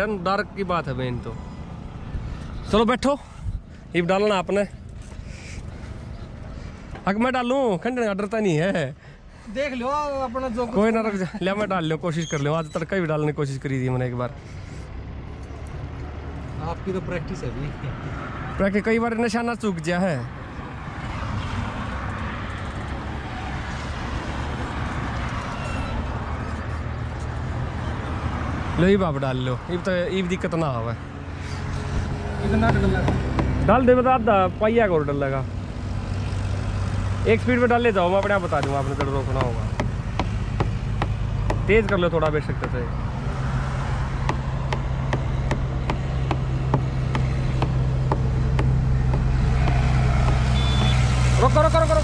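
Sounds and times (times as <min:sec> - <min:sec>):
tractor diesel engine running: 0:44.0 - 0:52.0.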